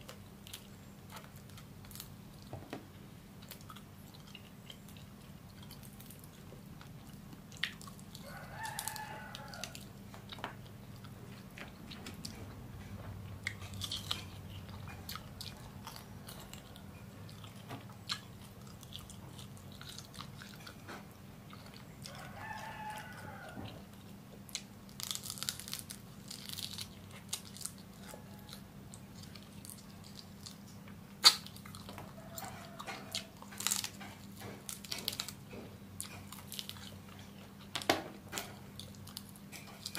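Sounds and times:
crunching and chewing beetles: 0:00.0 - 0:39.9
rooster crowing: 0:08.2 - 0:09.9, 0:22.0 - 0:23.9, 0:28.0 - 0:28.9, 0:31.9 - 0:33.6.

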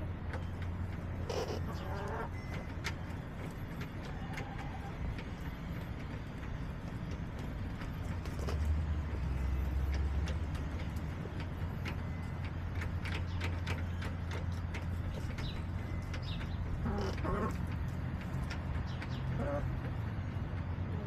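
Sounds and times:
faint chicken sounds: 0:01.2 - 0:02.4, 0:16.1 - 0:20.1.

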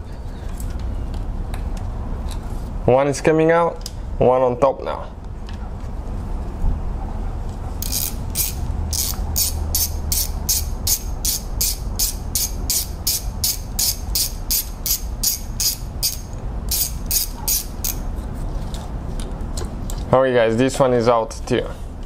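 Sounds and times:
hand ratchet clicking: 0:07.8 - 0:18.0.

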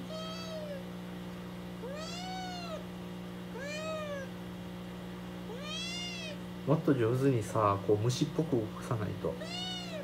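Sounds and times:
kitten meowing: 0:00.0 - 0:00.8, 0:01.8 - 0:02.9, 0:03.5 - 0:04.4, 0:05.5 - 0:06.4, 0:09.4 - 0:10.0.

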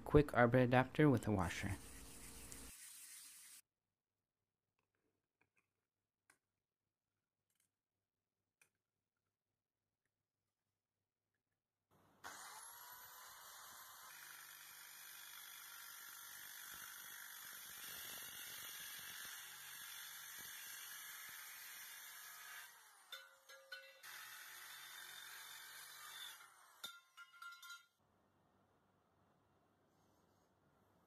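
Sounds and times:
circular saw cutting steel tube: 0:01.5 - 0:03.6, 0:12.2 - 0:27.8.

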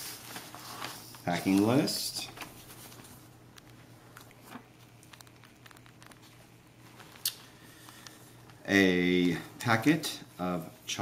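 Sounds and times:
paper and bubble wrap crinkling: 0:00.0 - 0:07.2
sharp crackle: 0:03.5 - 0:08.2.

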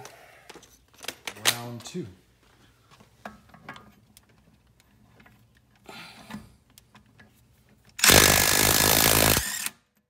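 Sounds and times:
faint clicks and metal knocks: 0:02.9 - 0:08.0.

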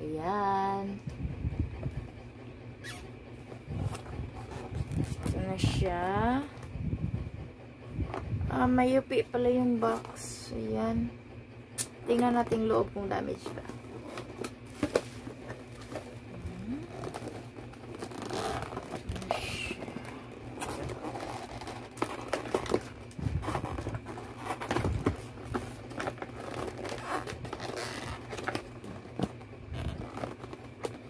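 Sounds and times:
packaging crinkling and rustling: 0:13.4 - 0:31.0.

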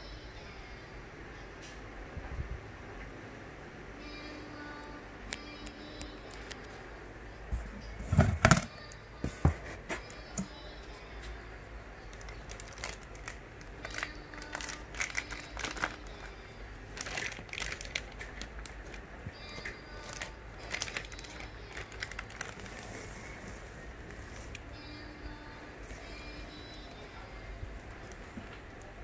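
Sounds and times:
plastic wrapping crinkling: 0:12.1 - 0:24.6.

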